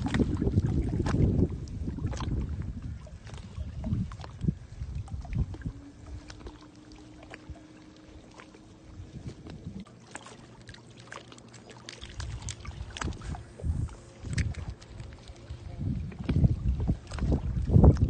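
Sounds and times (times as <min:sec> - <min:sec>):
wind buffeting microphone: 0:00.0 - 0:08.2, 0:08.8 - 0:09.9, 0:12.1 - 0:18.0
faint steady hum: 0:00.0 - 0:18.0
small waves on lake: 0:00.0 - 0:18.0.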